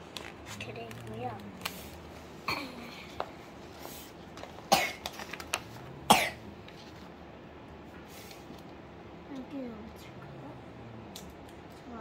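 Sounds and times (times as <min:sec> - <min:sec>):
sticker sheets rustling: 0:00.0 - 0:02.1
person coughing: 0:02.5 - 0:03.1, 0:04.7 - 0:05.0, 0:06.1 - 0:06.5.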